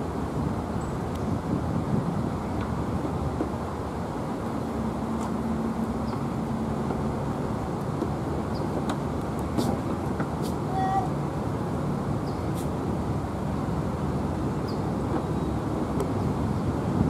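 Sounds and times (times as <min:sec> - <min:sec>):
distant road traffic: 0:00.0 - 0:17.0.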